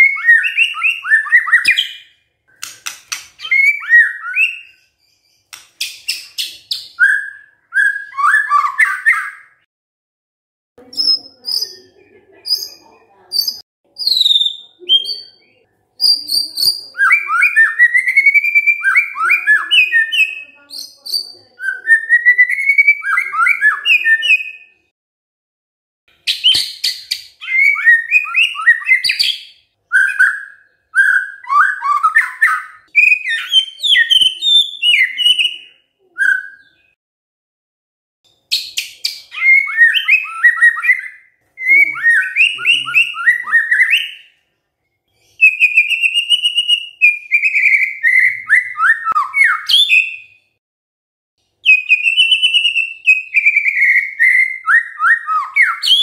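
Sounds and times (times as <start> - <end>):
bird singing whistled phrases: 0.0 - 2.7, 3.4 - 5.5, 6.1 - 9.6, 13.4 - 24.8, 26.3 - 37.0, 38.5 - 44.4, 45.4 - 50.4, 51.6 - 56.0
sharp bird clicking notes: 2.5 - 3.5, 5.5 - 6.8.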